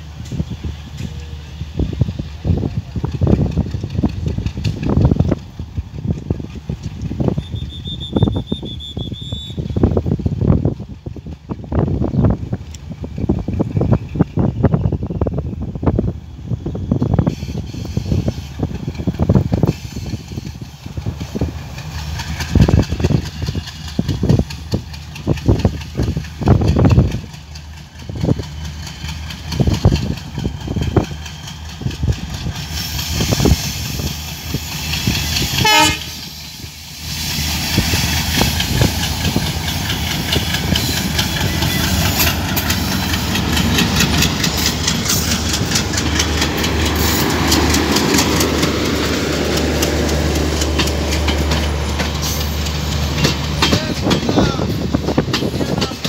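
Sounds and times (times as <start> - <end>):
train wheels clattering on rails: 0.0 - 16.0, 16.6 - 56.0
train locomotive rumble: 0.0 - 56.0.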